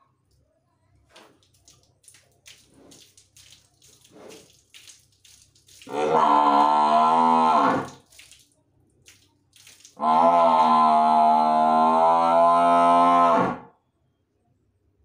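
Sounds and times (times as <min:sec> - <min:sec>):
buffalo mooing: 0:05.9 - 0:08.0, 0:10.0 - 0:13.7.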